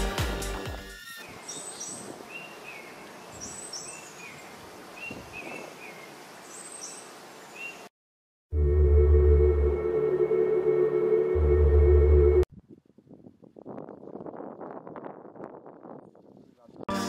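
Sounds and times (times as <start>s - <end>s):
birds chirping high: 1.2s - 7.9s.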